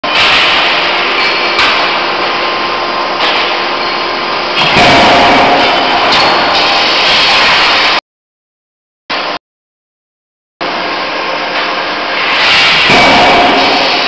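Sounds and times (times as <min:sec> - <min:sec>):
forging hammer machine noise: 0:00.0 - 0:08.0, 0:10.6 - 0:14.0.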